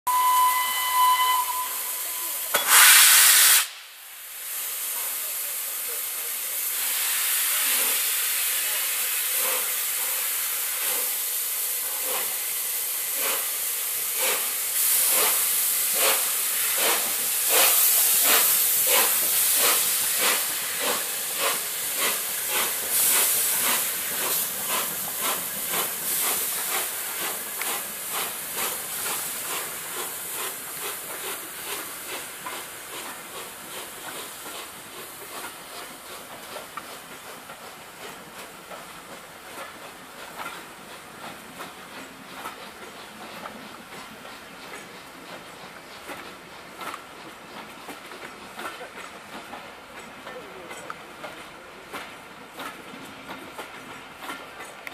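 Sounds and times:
steam locomotive whistle: 0.1s - 3.8s
blast of steam: 0.2s - 35.3s
steady hiss of steam: 0.2s - 54.9s.

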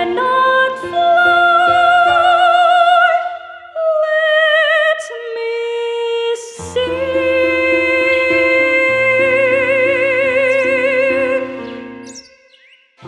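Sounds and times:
woman singing with vibrato: 0.0s - 11.7s.

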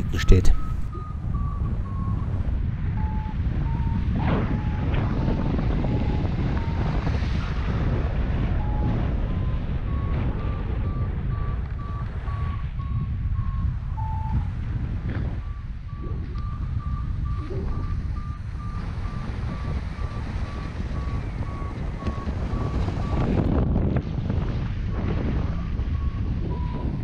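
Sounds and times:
variometer short high beeps: 0.0s - 2.2s, 10.0s - 14.5s
wind noise on microphone: 0.0s - 27.0s.

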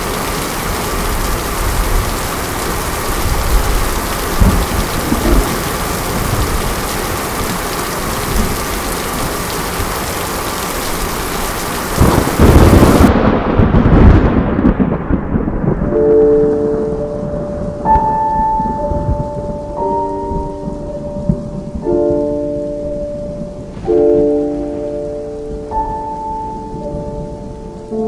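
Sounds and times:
heavy rain hissing: 0.0s - 14.5s
thunder rumbling: 0.0s - 28.0s.

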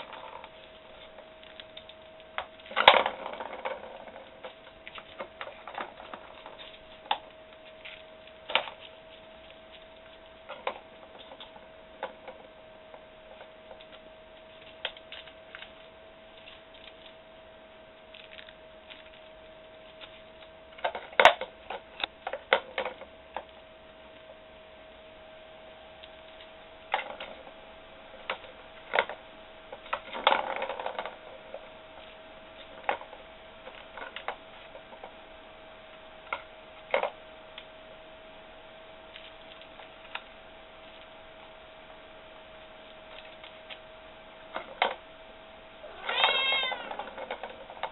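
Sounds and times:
plastic cat toy clicking and rattling: 0.0s - 7.2s, 29.8s - 35.1s, 46.1s - 47.9s
faint steady whine: 0.0s - 47.9s.

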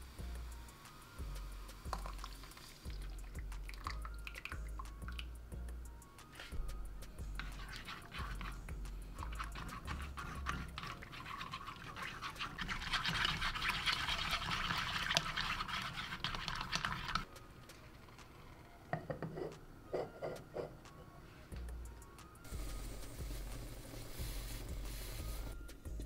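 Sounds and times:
chopsticks whisking in a pot: 7.3s - 17.3s
liquid sloshing: 9.2s - 17.2s.

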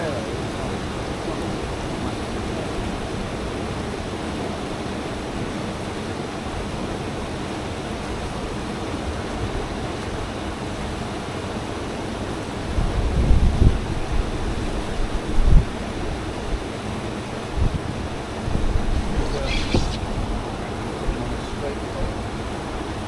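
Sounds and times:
water rushing along hull: 0.0s - 23.0s
wind on microphone: 12.6s - 22.3s.

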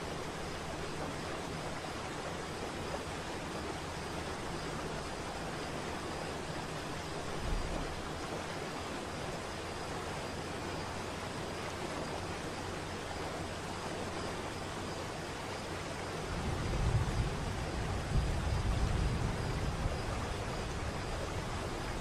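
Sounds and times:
waterfall roaring: 0.0s - 22.0s.

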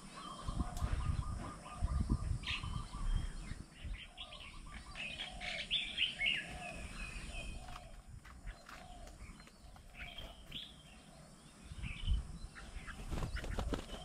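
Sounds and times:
bird rapid trill: 12.7s - 14.0s.

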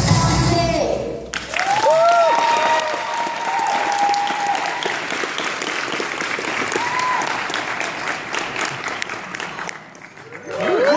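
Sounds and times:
audience applauding: 1.3s - 10.9s
cheers: 1.4s - 5.5s, 6.4s - 8.0s, 10.2s - 10.9s.

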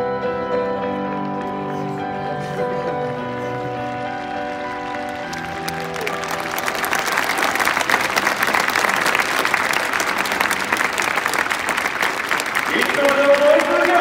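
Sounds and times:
music: 0.0s - 14.0s
stadium crowd applauding: 1.7s - 14.0s.

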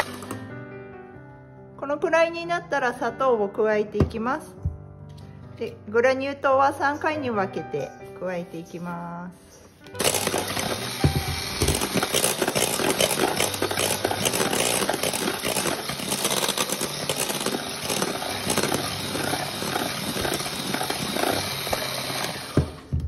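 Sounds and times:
electric hand mixer whisking: 0.0s - 0.4s, 10.0s - 23.0s.

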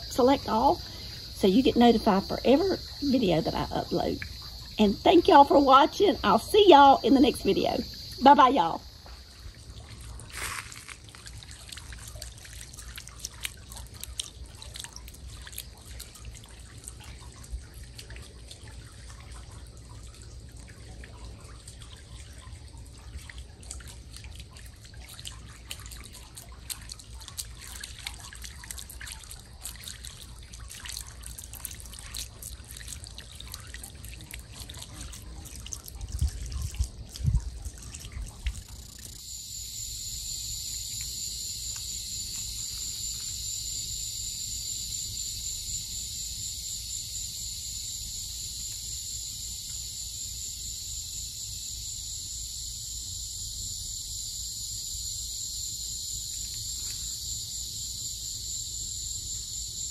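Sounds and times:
fountain water trickling and splashing: 0.0s - 39.2s.

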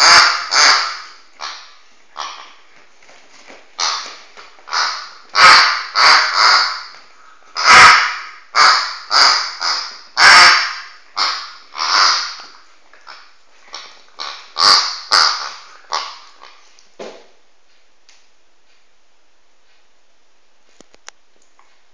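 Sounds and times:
squeaky toy honking squeaks: 0.0s - 1.6s, 7.6s - 12.5s
dog chewing toy: 0.0s - 2.7s, 7.6s - 16.7s.

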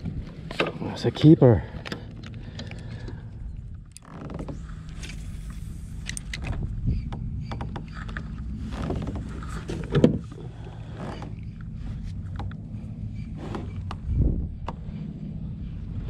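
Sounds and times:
steady low rumble: 0.0s - 16.0s
fishing gear clicks and knocks: 1.7s - 5.4s.

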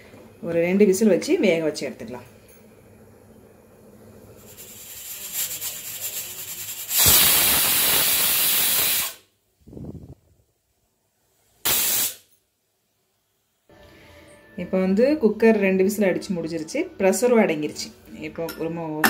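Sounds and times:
pressure cooker steam hissing: 4.3s - 9.2s, 11.7s - 12.2s
low steam puff: 6.8s - 10.2s.

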